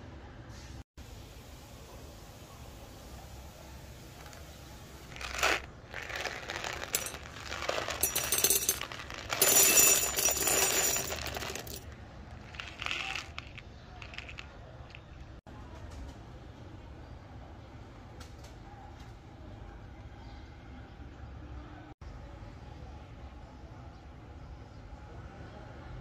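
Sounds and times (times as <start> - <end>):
coffee beans rattling in metal cup: 5.1 - 15.3.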